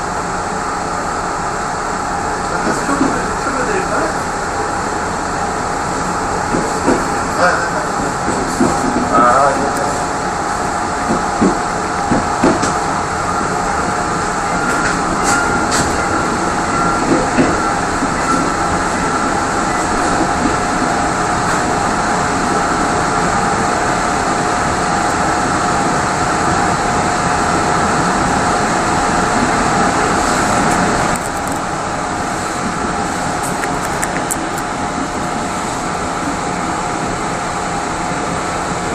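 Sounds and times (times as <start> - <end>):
train rolling rumble: 0.0 - 38.9
steady high hum: 28.2 - 38.2.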